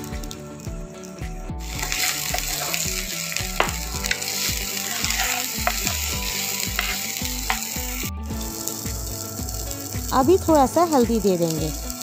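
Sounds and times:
vegetables sizzling in hot oil: 0:00.0 - 0:12.0
wooden spatula scraping a pan: 0:01.7 - 0:07.6.

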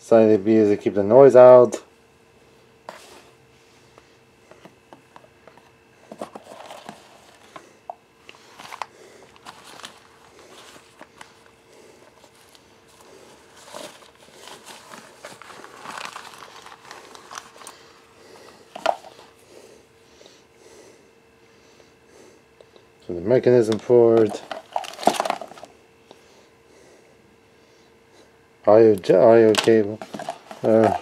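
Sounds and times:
faint steady hum: 0:00.0 - 0:31.0
packaging rustling and crinkling: 0:05.5 - 0:07.6, 0:08.3 - 0:19.4, 0:24.1 - 0:25.7, 0:29.4 - 0:31.0.

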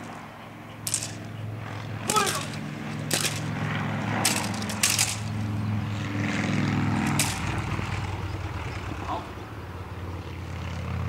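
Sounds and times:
engine drone: 0:00.0 - 0:11.0
sharp cracks: 0:00.8 - 0:05.6, 0:07.0 - 0:07.8.

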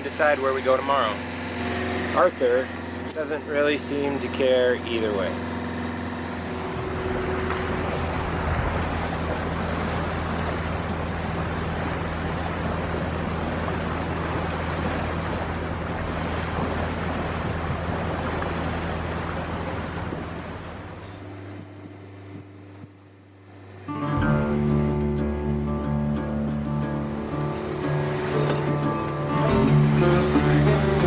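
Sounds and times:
water rushing past hull: 0:00.0 - 0:22.2, 0:23.8 - 0:31.0
boat engine hum: 0:00.0 - 0:31.0
wind buffeting microphone: 0:06.5 - 0:22.9.

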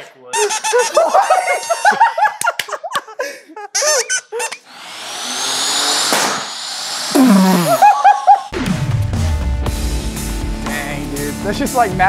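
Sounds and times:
people laughing: 0:00.4 - 0:04.1, 0:07.4 - 0:08.6.

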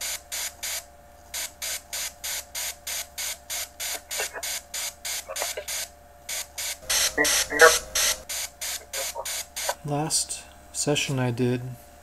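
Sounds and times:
short bursts of static: 0:00.0 - 0:09.9
steady tone: 0:06.8 - 0:08.2.

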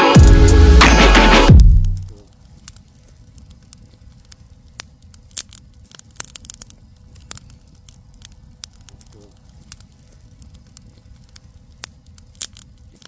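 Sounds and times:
wood fire crackling and popping: 0:00.0 - 0:13.0
low rumble: 0:00.2 - 0:02.1.

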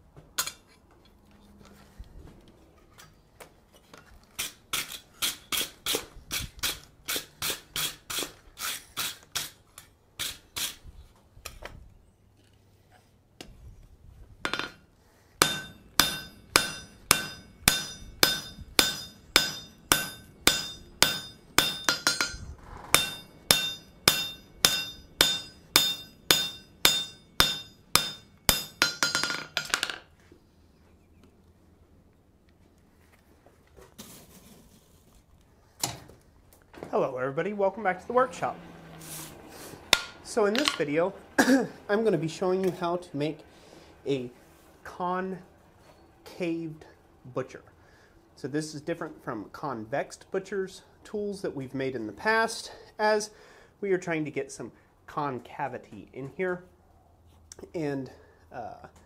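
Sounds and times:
hammer blows on anvil: 0:15.4 - 0:29.4.

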